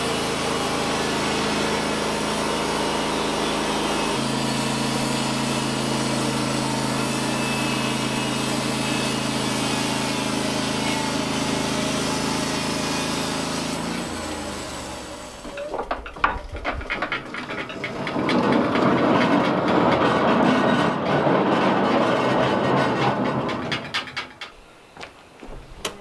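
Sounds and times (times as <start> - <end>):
loud rough noise: 0.0 - 24.3
saw blade cutting log: 0.0 - 24.3
band sawmill engine running: 0.0 - 24.7
sharp knocks: 15.4 - 24.5.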